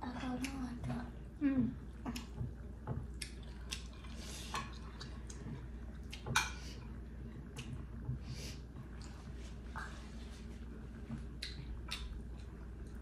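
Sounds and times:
chewing and mouth sounds: 0:01.9 - 0:08.0, 0:11.1 - 0:13.0.

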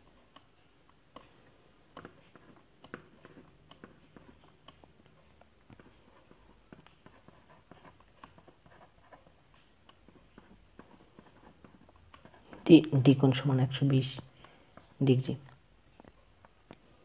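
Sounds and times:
pen writing on paper: 0:00.9 - 0:12.8.

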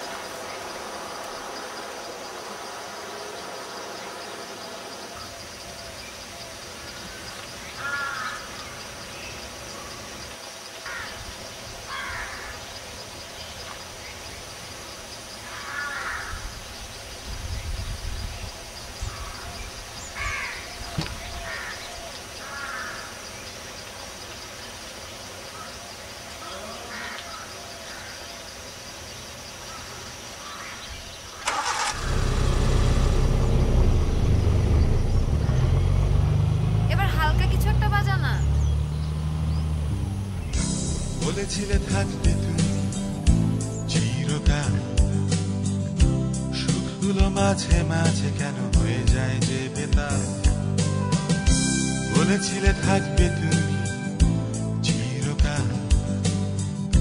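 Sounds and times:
outdoor background hiss: 0:00.0 - 0:44.6
vehicle engine starting and running: 0:31.4 - 0:44.3.

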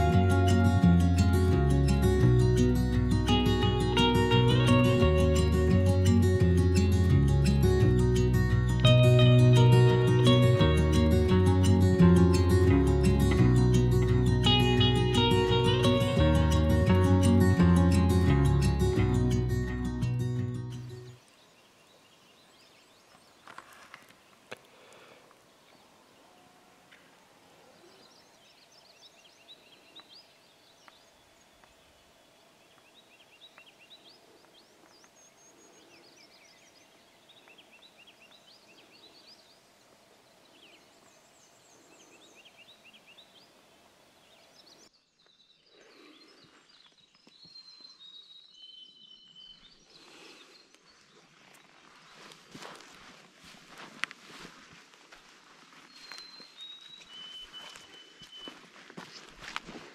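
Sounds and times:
songbirds chirping: 0:00.0 - 0:59.9
bird whistling: 0:56.2 - 0:58.6.

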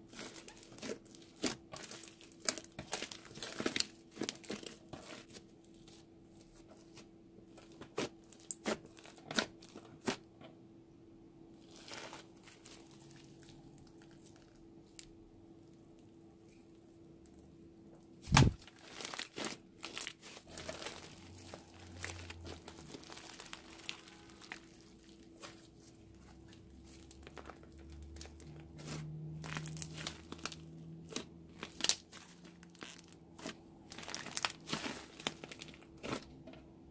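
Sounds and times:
slime crackling and popping: 0:00.0 - 0:04.8, 0:18.3 - 0:25.6, 0:27.1 - 0:36.3.

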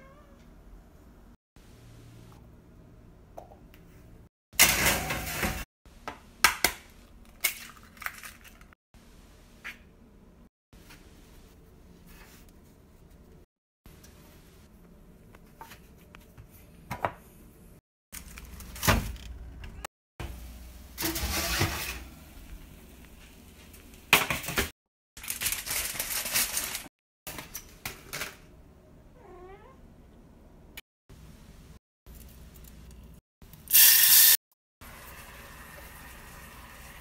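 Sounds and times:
kitchen rustles and clatters: 0:04.6 - 0:05.7, 0:07.2 - 0:08.8, 0:18.2 - 0:28.5.

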